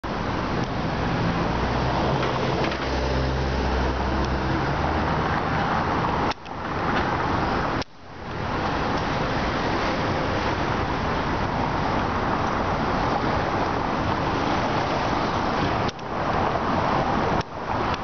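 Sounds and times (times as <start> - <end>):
low engine hum: 0.0 - 18.0
passing vehicles: 0.0 - 18.0.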